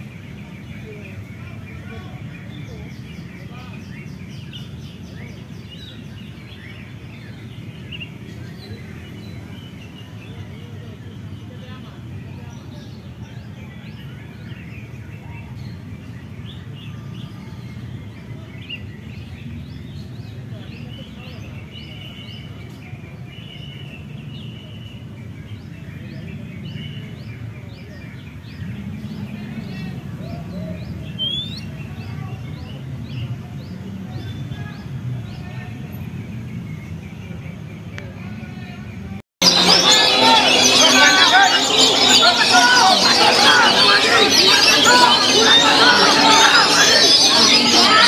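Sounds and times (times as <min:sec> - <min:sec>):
bird singing chirps and whistles: 0:30.2 - 0:32.1
bird chirping and whistling: 0:31.1 - 0:31.7, 0:39.4 - 0:48.0.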